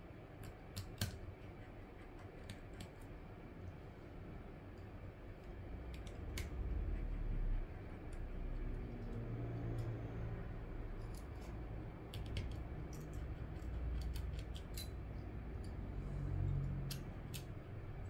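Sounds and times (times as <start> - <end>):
low steady hum: 0.0 - 18.0
tools clicking on small screws: 12.1 - 15.8, 16.6 - 17.6.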